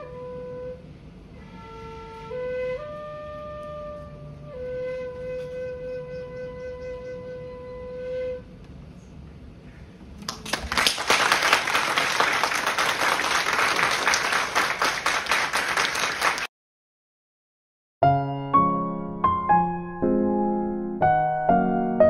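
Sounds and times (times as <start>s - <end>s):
bamboo flute note: 0.0s - 8.6s
audience applauding: 10.2s - 16.5s.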